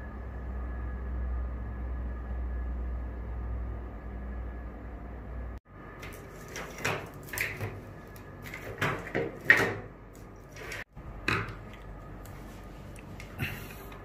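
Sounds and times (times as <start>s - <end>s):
rustles and clacks of wire and plastic: 6.0s - 14.0s.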